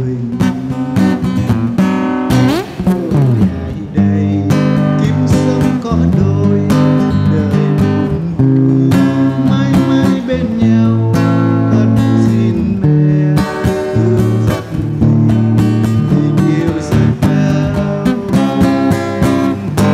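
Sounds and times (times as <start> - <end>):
acoustic guitar strumming: 0.0 - 19.9.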